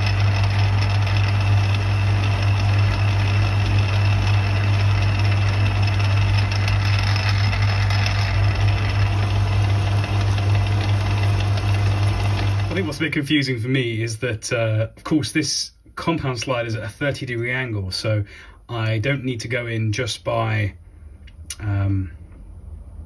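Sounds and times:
metal lathe humming: 0.0 - 13.1.

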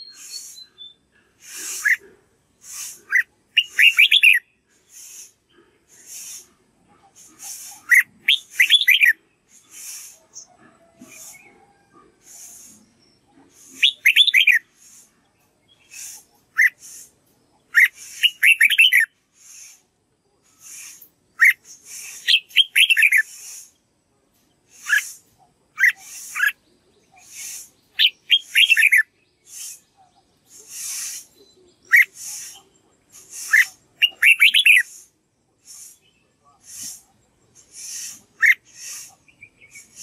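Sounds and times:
bird singing whistled notes: 0.0 - 2.0, 2.7 - 5.3, 7.4 - 10.5, 12.3 - 19.8, 20.6 - 23.8, 24.7 - 35.0, 35.6 - 40.0.

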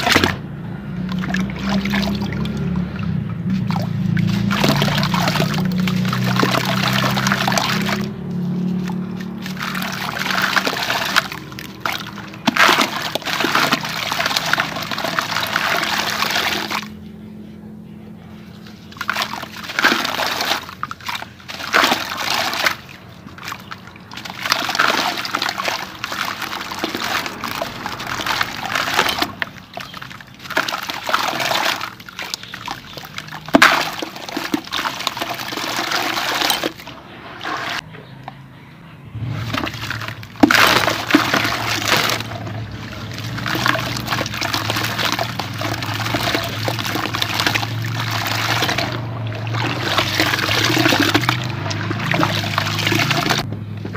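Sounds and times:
grit splashing into water: 0.0 - 17.0, 18.6 - 37.8, 39.2 - 53.5
cement blocks crumbling by hand: 9.3 - 16.8, 23.6 - 36.8, 39.4 - 49.0.

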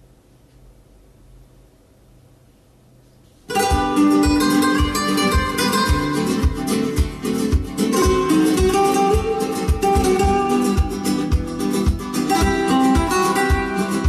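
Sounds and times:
faint low hum: 0.0 - 7.6
guitar music over loudspeakers: 3.5 - 14.0.

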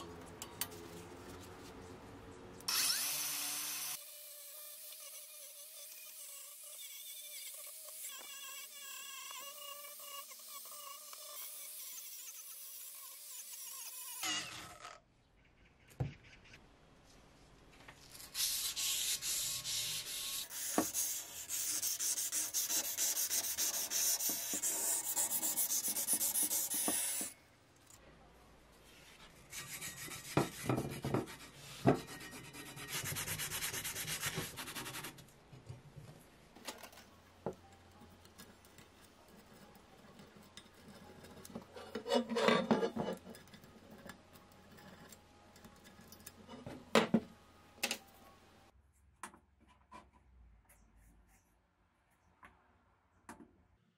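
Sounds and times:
sandpaper scratching on metal: 18.2 - 27.3, 29.5 - 35.1.

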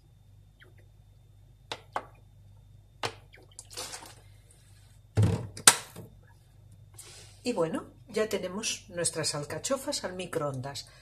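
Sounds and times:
vinegar dribbling from bottle: 3.1 - 4.2
faint liquid splash: 3.3 - 4.3.

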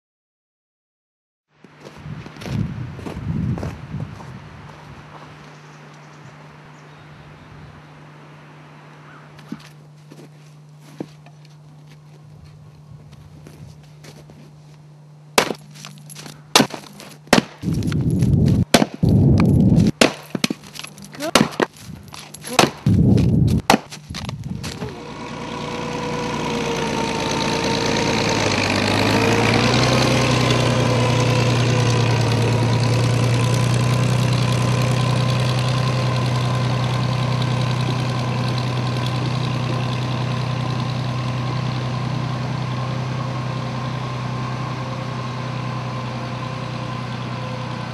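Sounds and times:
tractor engine running: 8.8 - 47.9
wood splitting knocks: 15.4 - 24.8.

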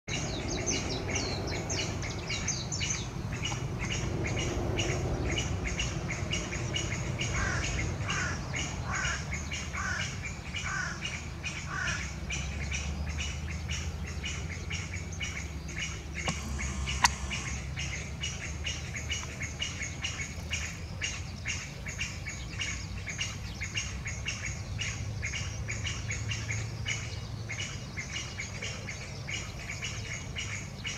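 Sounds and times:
partridge calling: 0.1 - 30.9
sharp click: 16.2 - 17.6.

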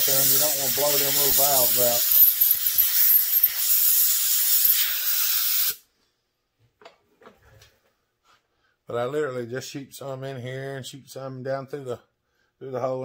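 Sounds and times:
air jet hissing: 0.0 - 5.8.

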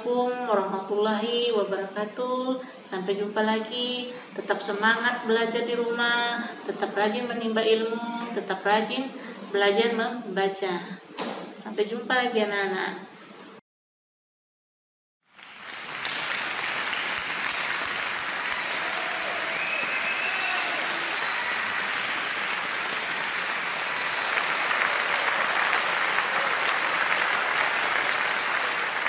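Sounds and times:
applause: 15.3 - 29.0.

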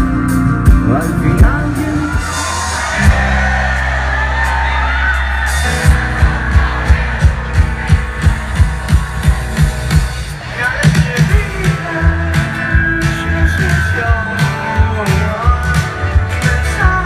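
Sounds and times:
drums: 0.0 - 17.0
rock band playing loud: 0.0 - 17.0
person singing lead vocal: 0.6 - 3.4, 10.4 - 17.0.

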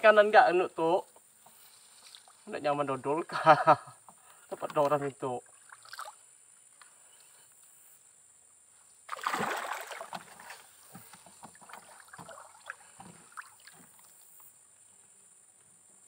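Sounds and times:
loud water splash: 9.1 - 10.6
water swishes: 9.1 - 14.7.

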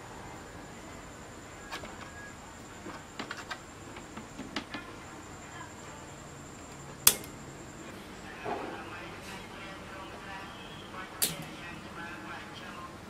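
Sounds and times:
faint steady high tone: 0.0 - 3.1, 4.7 - 13.0
sharp loud click: 7.1 - 7.4, 11.2 - 11.6.

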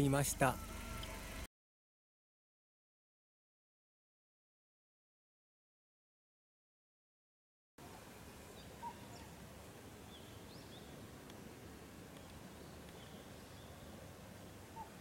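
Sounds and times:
outdoor background hiss: 0.0 - 1.5, 7.8 - 15.0
faint bird chirps: 8.3 - 9.4, 14.6 - 15.0.

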